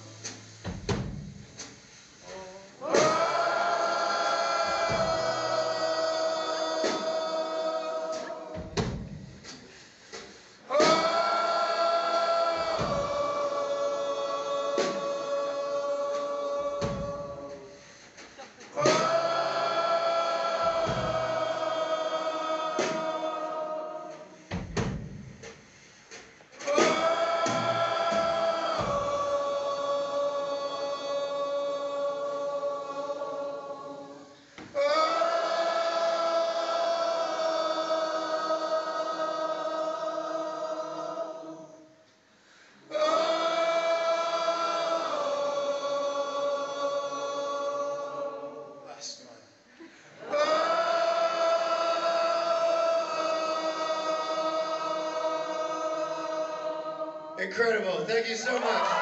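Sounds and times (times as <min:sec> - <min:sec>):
drum hits: 0:00.0 - 0:17.9, 0:18.8 - 0:33.2
audience and band singing: 0:02.2 - 0:25.0, 0:26.1 - 0:41.8, 0:42.9 - 0:48.6, 0:50.1 - 0:57.4.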